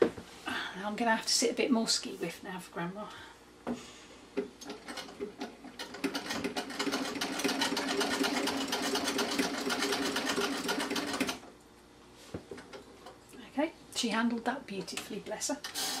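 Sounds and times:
sewing machine clattering: 4.6 - 11.4.

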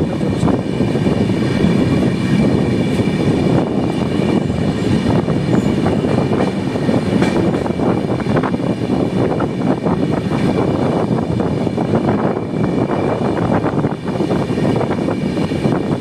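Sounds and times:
train wheels rumbling on track: 0.0 - 16.0
clicks of train wheels: 5.5 - 8.0.

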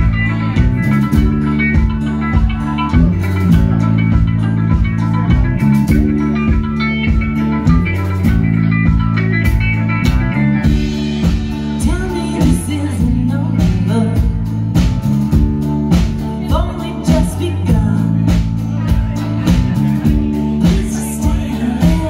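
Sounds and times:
drum kit beating: 0.0 - 22.0
live rock band playing: 0.0 - 22.0
person singing: 11.2 - 14.6, 16.2 - 22.0.

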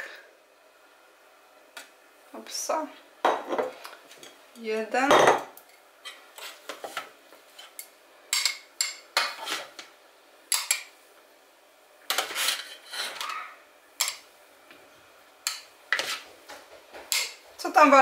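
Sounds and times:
utensil scraping steel bowl: 12.1 - 13.4, 15.9 - 16.2.

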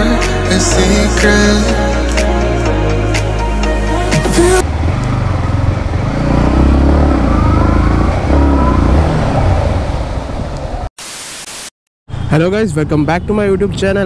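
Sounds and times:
motorcycle engine revving: 4.5 - 10.9.

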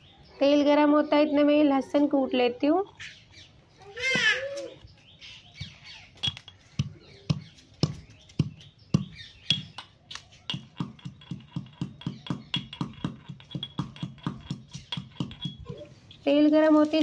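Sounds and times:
steel pestle pounding in mortar: 6.2 - 9.9, 10.5 - 15.8.

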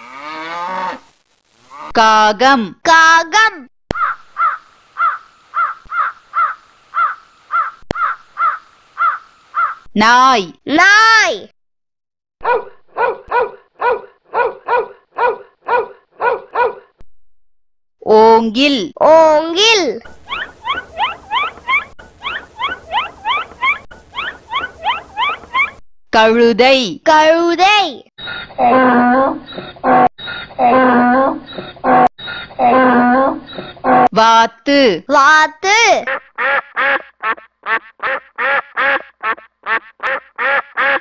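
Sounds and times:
dog barking: 12.4 - 16.9
donkey braying: 20.1 - 25.8, 28.3 - 34.1.

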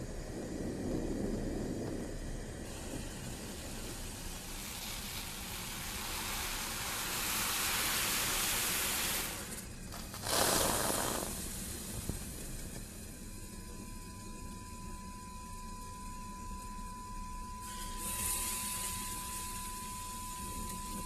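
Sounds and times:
rushing hiss: 2.6 - 12.7.

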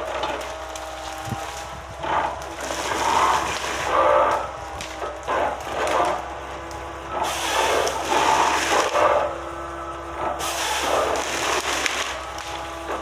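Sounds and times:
engine and hydraulics running: 0.0 - 13.0
hissing and scraping: 1.4 - 6.3, 7.1 - 9.4, 10.2 - 13.0.

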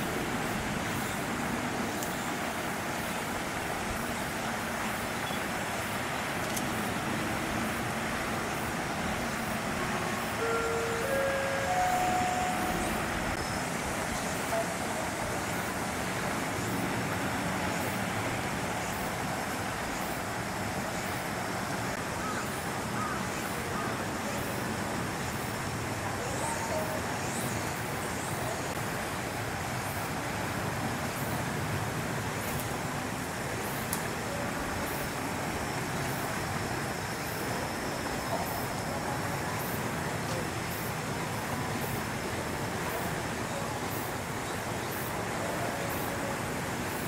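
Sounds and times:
outdoor hum and hiss: 0.0 - 47.0
short faint tones: 10.4 - 13.4.

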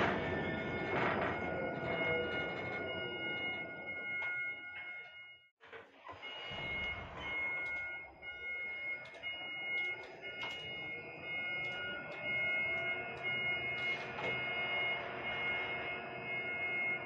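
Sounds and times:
low whine: 0.0 - 5.3, 6.3 - 17.0
crane wheels and drives rumbling: 0.0 - 17.0
scattered clicks: 8.9 - 10.8.

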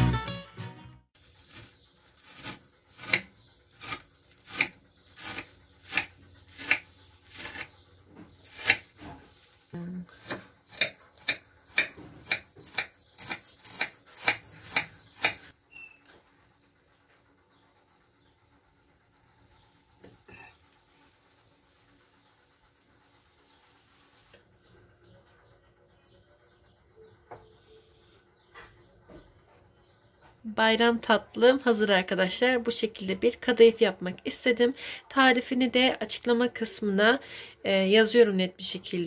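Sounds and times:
knife sawing crisp pastry: 1.2 - 15.5.

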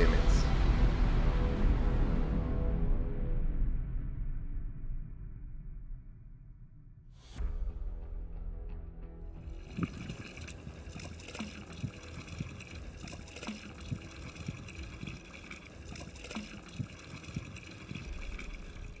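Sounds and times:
water trickling from fountain: 9.4 - 19.0.

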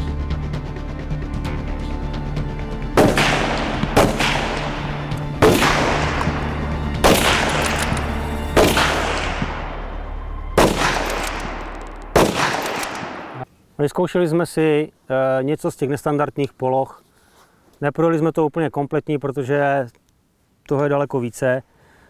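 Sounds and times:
low music bed: 0.0 - 13.4
rifle shots echoing: 3.0 - 13.4.

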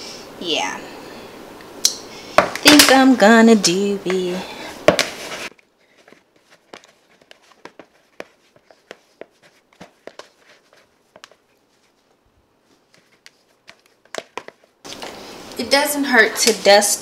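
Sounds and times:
dough kneading clicks and taps: 11.1 - 11.4, 12.9 - 14.6.

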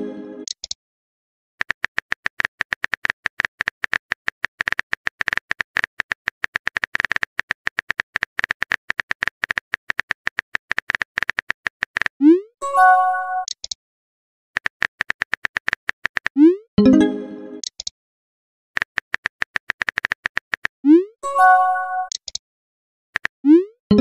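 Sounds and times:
phone keyboard typing clicks: 0.4 - 0.8, 1.6 - 12.2, 13.4 - 13.8, 14.6 - 16.4, 17.6 - 17.9, 18.8 - 20.8, 22.1 - 22.4.

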